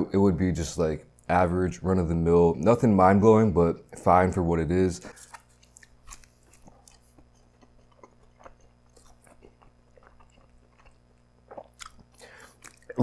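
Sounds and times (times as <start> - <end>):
biting into pizza: 5.1 - 13.0
chewing mouth sounds: 5.1 - 13.0.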